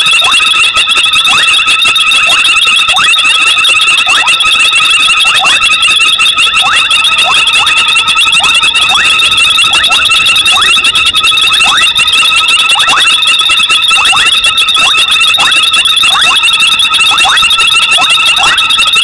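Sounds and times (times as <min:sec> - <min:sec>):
upward-sweeping frog calls: 0:06.5 - 0:13.3.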